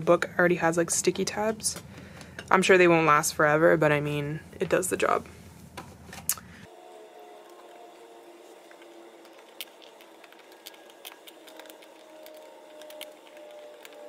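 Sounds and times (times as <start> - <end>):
small items clicking and tapping: 8.7 - 14.0.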